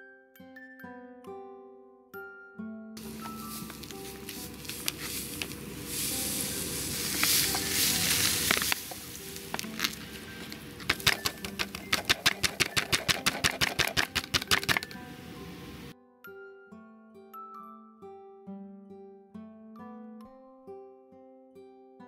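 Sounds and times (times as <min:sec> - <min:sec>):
background music: 0:00.0 - 0:22.0
powder pouring into water: 0:03.0 - 0:15.0
utensil stirring in plastic container: 0:03.0 - 0:15.0.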